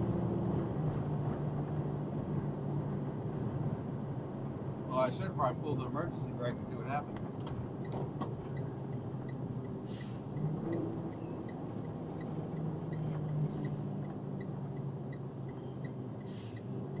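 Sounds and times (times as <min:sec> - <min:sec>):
truck engine and road noise: 0:00.0 - 0:17.0
quick ticking from dash: 0:05.4 - 0:17.0.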